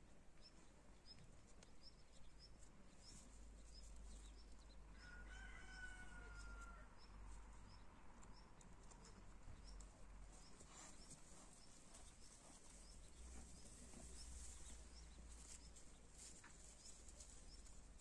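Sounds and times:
faint rooster crowing: 4.9s - 7.8s.

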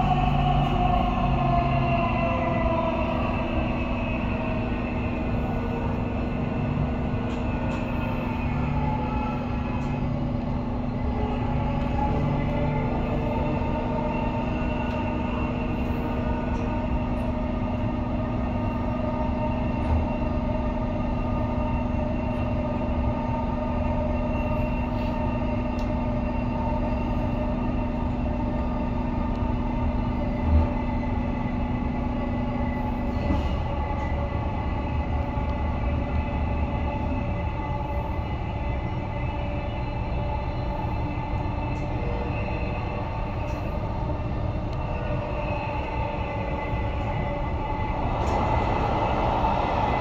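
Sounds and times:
train motor hum: 0.0s - 50.0s
train wheels rumbling on rail: 0.0s - 50.0s.

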